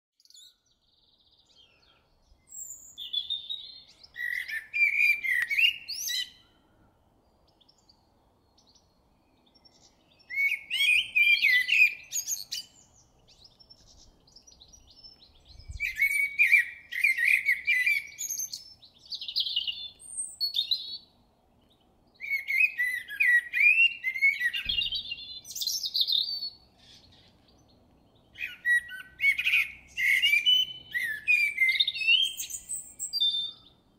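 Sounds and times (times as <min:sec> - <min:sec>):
blackbird singing: 0:00.2 - 0:33.9.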